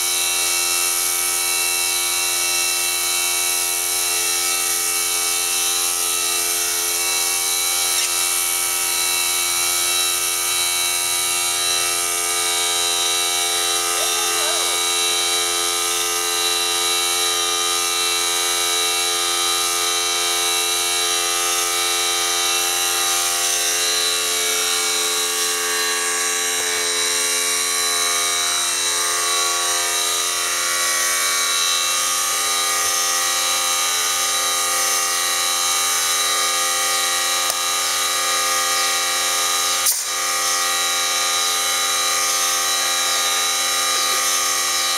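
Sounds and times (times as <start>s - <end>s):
electric buzz: 0.0s - 44.9s
sharp click: 7.9s - 8.2s, 39.8s - 40.1s.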